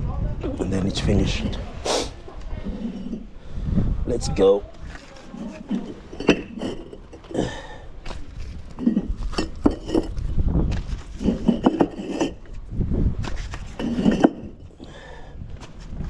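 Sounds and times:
bricks knocking together: 0:04.9 - 0:12.6, 0:13.2 - 0:14.8.

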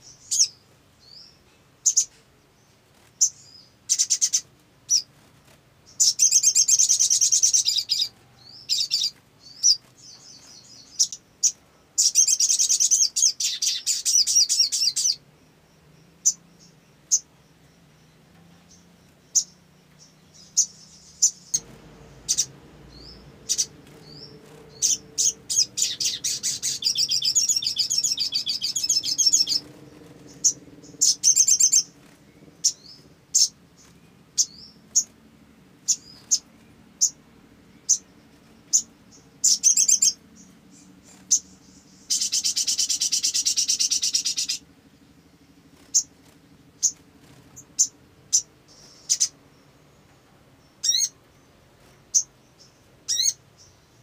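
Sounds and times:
bird chirps: 0:00.0 - 0:54.0
bird trilling: 0:03.2 - 0:05.1, 0:05.9 - 0:15.2, 0:19.3 - 0:35.2, 0:35.8 - 0:37.2, 0:37.8 - 0:49.4, 0:50.8 - 0:51.2, 0:52.1 - 0:53.4.

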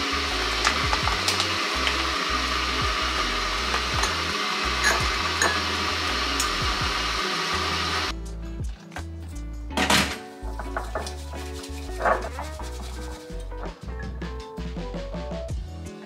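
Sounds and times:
steady rushing hiss: 0:00.0 - 0:08.1, 0:10.3 - 0:13.9
ceramic spoon clinking on strainer: 0:04.8 - 0:05.6.

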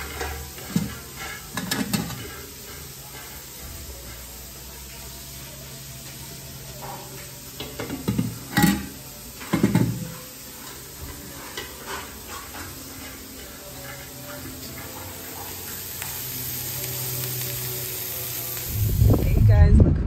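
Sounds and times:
metal pots clanking: 0:00.0 - 0:03.6, 0:07.6 - 0:16.2.

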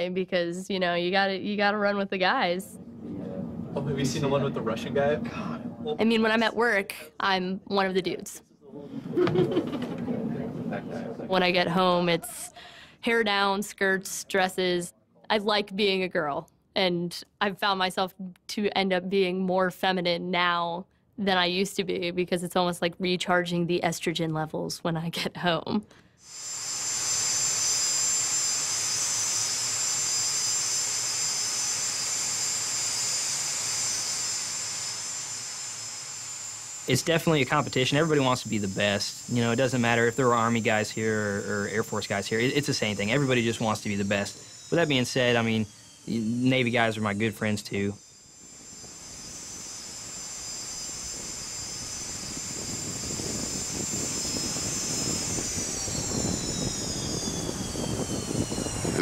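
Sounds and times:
jet engine turbine whine: 0:02.4 - 0:14.4, 0:26.2 - 0:59.0
jet engine roar: 0:02.7 - 0:06.0, 0:08.9 - 0:11.8, 0:48.5 - 0:59.0.

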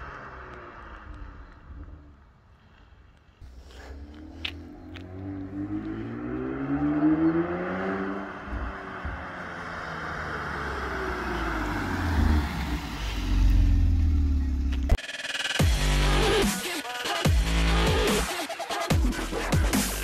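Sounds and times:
car engine accelerating past: 0:03.6 - 0:14.8.

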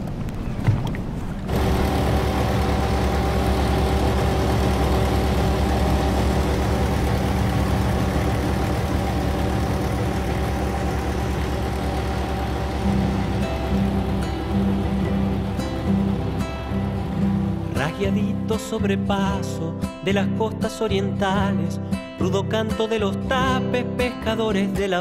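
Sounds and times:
water noise: 0:00.0 - 0:18.0
wind: 0:00.0 - 0:18.1
boat motor running: 0:00.6 - 0:18.6.

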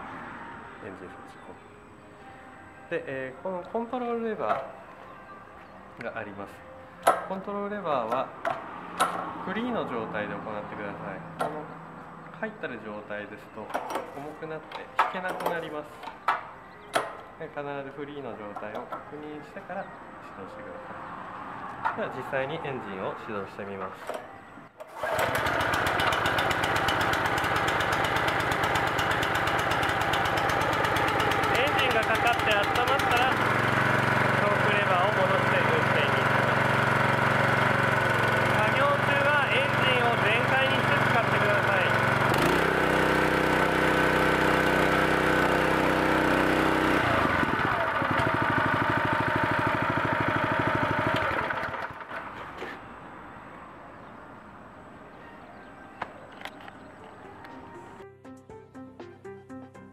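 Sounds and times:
small engine running: 0:24.8 - 0:52.8.

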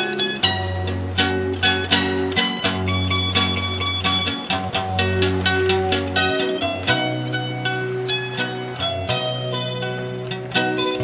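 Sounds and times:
plucked string notes: 0:00.0 - 0:11.0.

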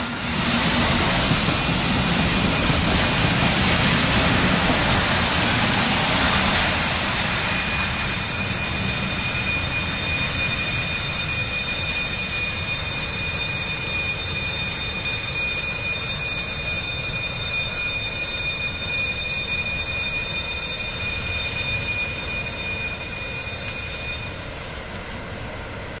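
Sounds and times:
high-pitched wheel squeal: 0:00.0 - 0:25.0
freight train rumbling on rails: 0:00.0 - 0:26.0.

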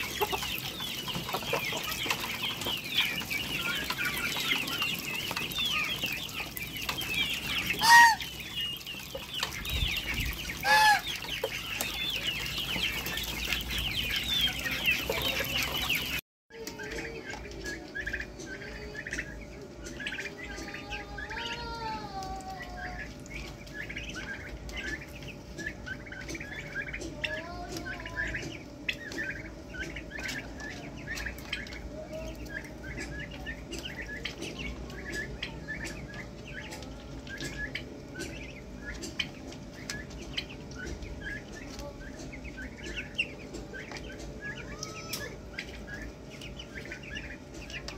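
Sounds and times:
sliding bird calls: 0:00.0 - 0:16.2
poultry peeping and chattering: 0:00.0 - 0:47.9.

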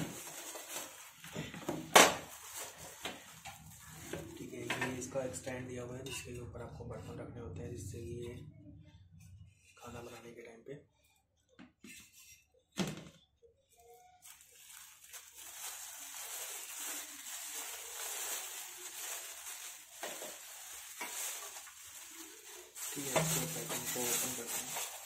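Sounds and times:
plastic wrap crinkling: 0:00.0 - 0:04.8, 0:13.8 - 0:25.0.

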